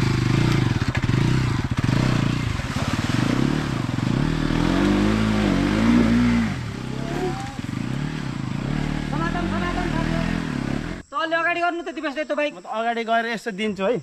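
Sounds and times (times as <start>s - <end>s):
motorcycle engine revving: 0.0s - 11.1s.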